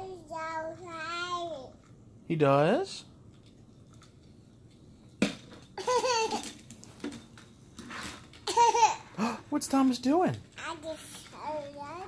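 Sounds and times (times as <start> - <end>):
toddler laughing: 5.8 - 6.5, 8.4 - 9.1.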